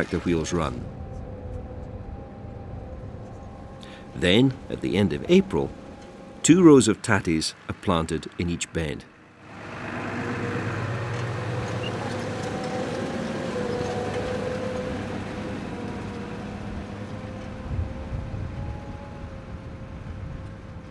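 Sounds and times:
thin steady whine: 0.0s - 9.6s
tractor engine rumbling: 0.0s - 20.9s.

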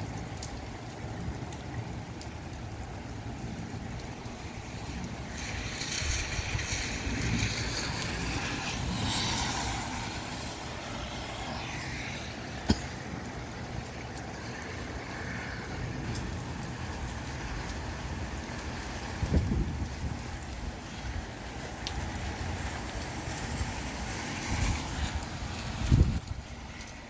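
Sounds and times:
rain: 0.0s - 27.0s
wind rumbling on microphone: 0.3s - 27.0s
gusty wind: 3.1s - 27.0s.

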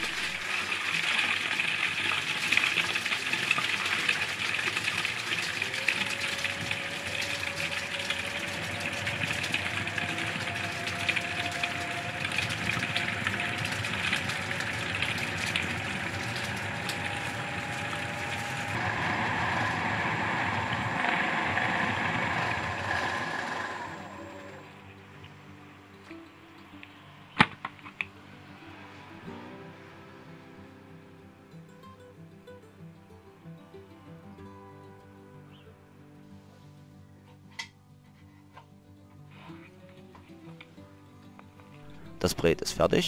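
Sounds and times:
bowl cutter whirring: 3.3s - 24.7s.

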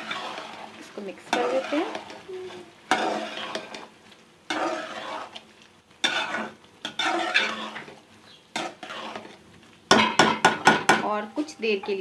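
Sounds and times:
spoon scraping through curry: 0.0s - 3.9s, 4.5s - 9.4s
spoon knocking on pot: 9.9s - 11.2s.

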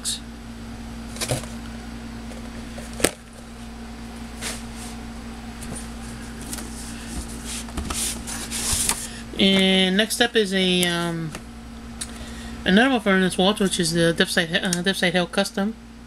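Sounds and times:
steady low hum: 0.0s - 16.0s
cardboard rustling: 1.1s - 1.6s, 5.6s - 9.1s.

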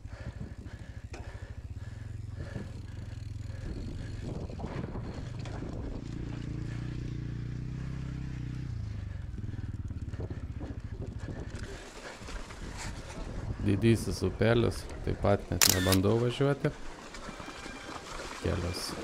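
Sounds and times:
wind rumble and buffeting: 0.0s - 7.4s, 8.6s - 15.8s.

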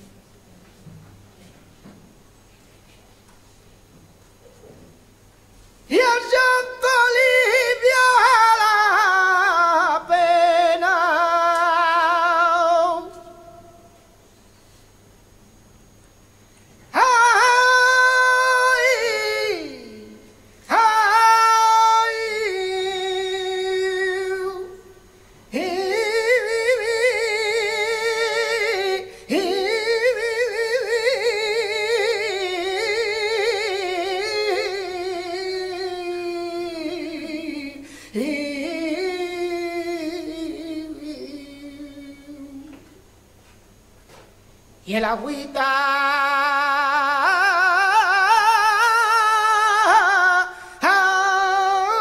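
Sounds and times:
man singing unaccompanied: 5.9s - 13.9s, 16.9s - 24.9s, 25.5s - 43.0s, 44.8s - 52.0s
singer breathing: 29.1s - 29.3s, 37.8s - 38.2s, 50.5s - 50.8s.

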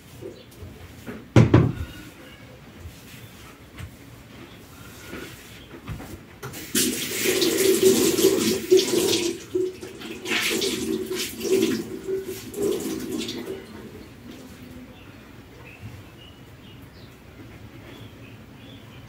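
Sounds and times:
tap water splashing into sink: 6.4s - 13.9s.

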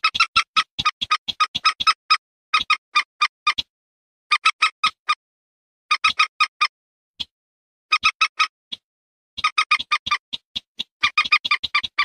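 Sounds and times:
wetland bird calls: 9.4s - 12.0s.

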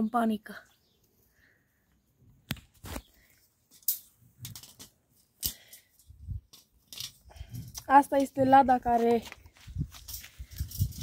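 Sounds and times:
wire cage clicking: 3.8s - 7.9s, 10.0s - 11.0s.

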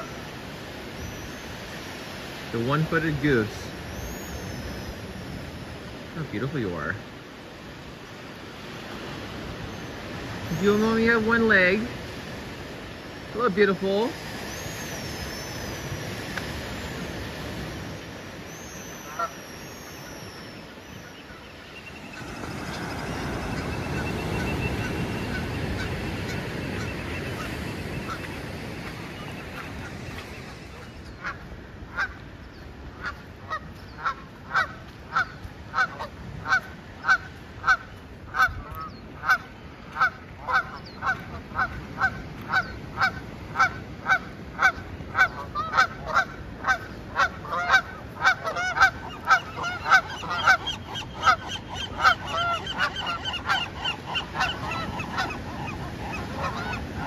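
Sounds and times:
goose honking: 33.0s - 57.0s.

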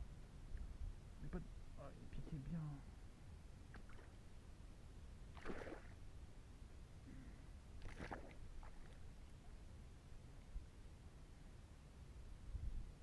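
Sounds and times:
fish splashing: 5.4s - 6.0s.

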